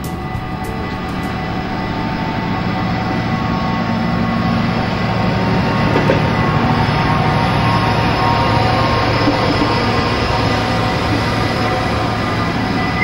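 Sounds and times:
diesel locomotive engine rumble: 0:00.0 - 0:13.0
rail noise: 0:00.0 - 0:13.0
thin steady high tones: 0:00.0 - 0:13.0.

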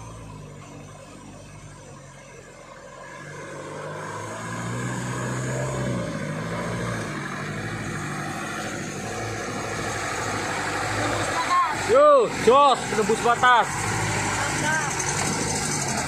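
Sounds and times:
truck engine revving: 0:00.0 - 0:16.0.

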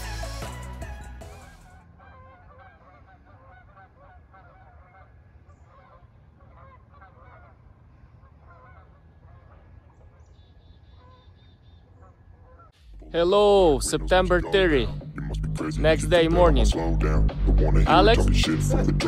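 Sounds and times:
geese honking: 0:00.0 - 0:15.0.

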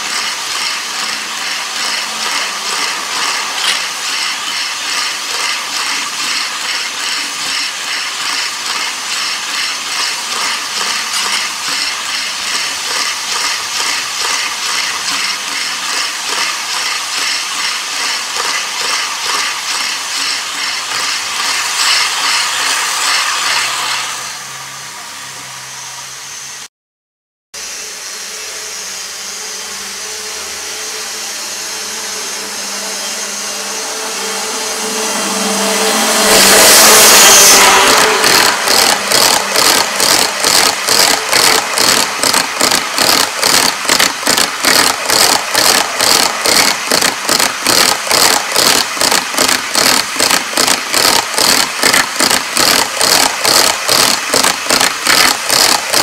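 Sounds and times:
model train wheels clattering: 0:00.0 - 0:23.9, 0:36.4 - 0:56.0
model train running hum: 0:00.0 - 0:26.7, 0:27.6 - 0:56.0.

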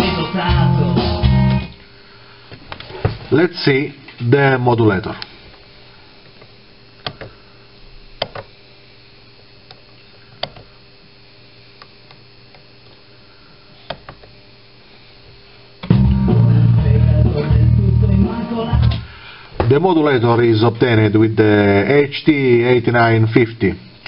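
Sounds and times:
guitar music through speakers: 0:00.0 - 0:01.8, 0:15.8 - 0:19.1
faint steady hum: 0:00.0 - 0:24.0.

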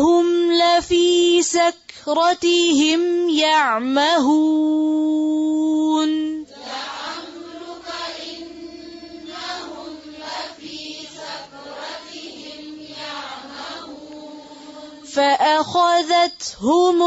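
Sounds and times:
voices chanting in unison: 0:06.4 - 0:15.4.

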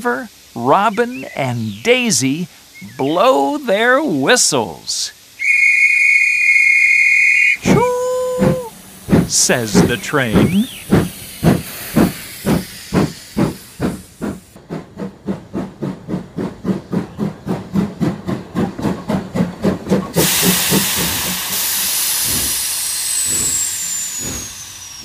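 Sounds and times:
cartoon steam train chugging: 0:00.0 - 0:25.0
steam hissing: 0:00.0 - 0:25.0
faint falling high whistle: 0:05.4 - 0:08.7.

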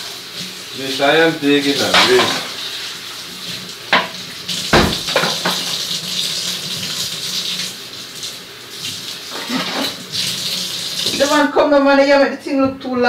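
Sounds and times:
kitchen tap running: 0:00.0 - 0:11.6
kitchenware knocking: 0:03.9 - 0:05.7.

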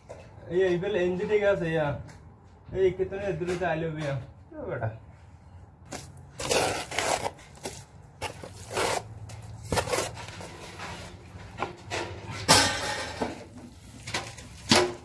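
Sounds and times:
trowel scraping mortar: 0:05.9 - 0:11.3.

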